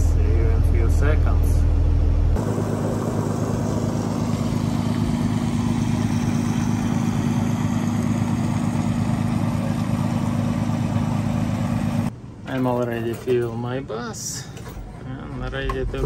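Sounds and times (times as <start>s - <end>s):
motor humming: 2.4s - 12.1s.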